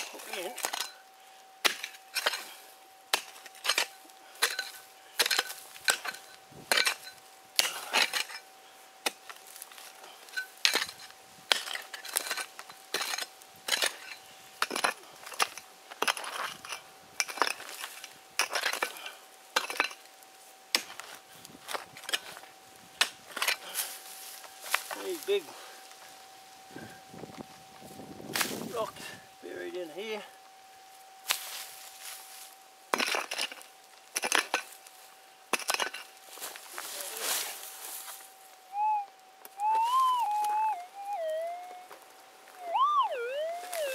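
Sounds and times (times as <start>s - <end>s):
pick striking stony soil: 1.6s - 8.4s.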